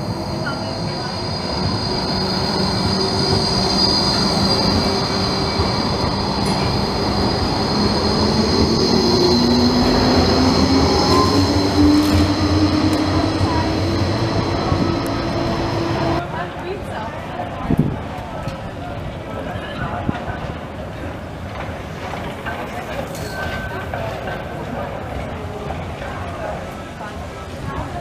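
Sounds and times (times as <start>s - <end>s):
tram wheels squealing on rails: 0.0s - 16.2s
tram running rumble: 0.0s - 28.0s.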